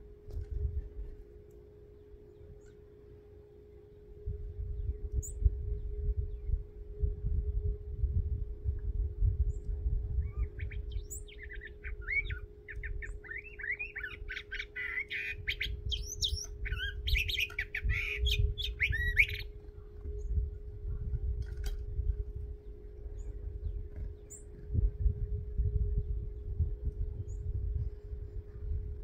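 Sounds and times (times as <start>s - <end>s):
low hum and rumble: 0.0s - 29.0s
bird whistling phrases: 10.2s - 19.9s.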